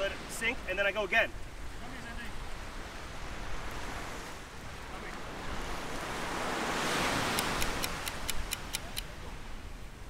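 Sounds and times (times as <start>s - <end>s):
ocean surf breaking: 0.0s - 9.7s
quick sharp clicks: 7.3s - 9.1s.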